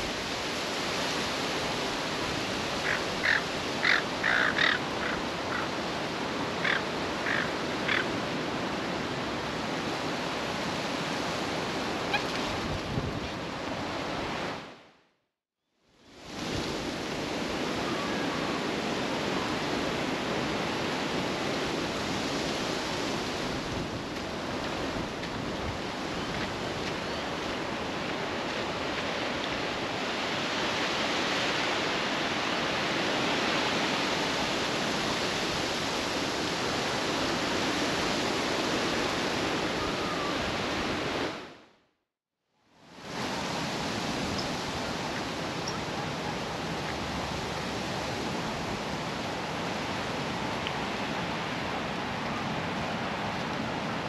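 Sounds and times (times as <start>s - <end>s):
gusty wind buffeting microphone: 1.2s - 14.6s.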